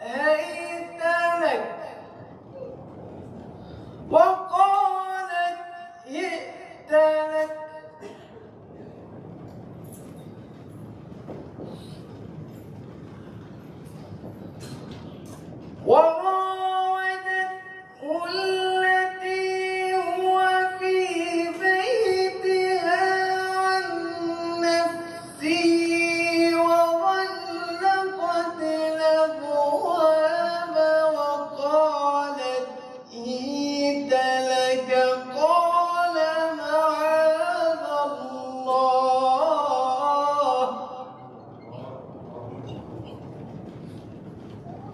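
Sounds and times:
man chanting melodically: 0:00.0 - 0:02.3, 0:04.1 - 0:08.1, 0:15.8 - 0:42.7.

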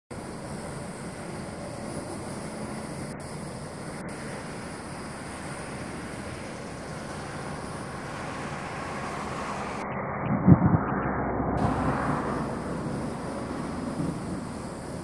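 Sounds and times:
gust buffeting microphone: 0:05.7 - 0:15.0
wind on microphone: 0:08.2 - 0:15.0.

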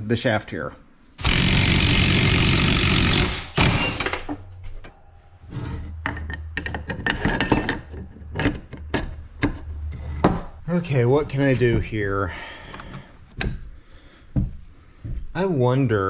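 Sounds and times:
metal parts clicking and clinking: 0:05.6 - 0:10.3.

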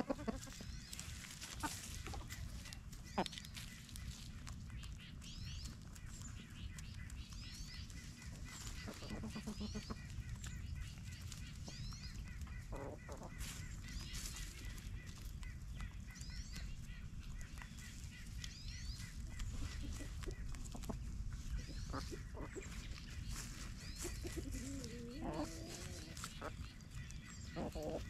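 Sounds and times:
chickens calling: 0:00.0 - 0:28.0
small birds chirping: 0:00.0 - 0:28.0.

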